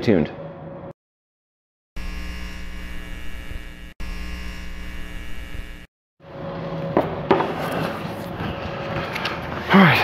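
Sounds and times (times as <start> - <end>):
neon signs buzzing: 2.0 - 5.9.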